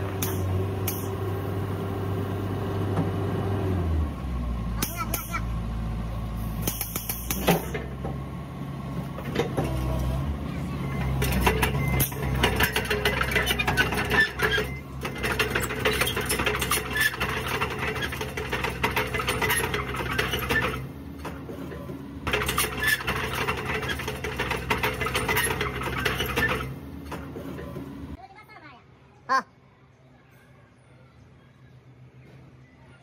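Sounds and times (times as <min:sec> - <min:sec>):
excavator diesel engine humming: 0:00.0 - 0:28.2
rapid metallic clatter: 0:22.3 - 0:26.7.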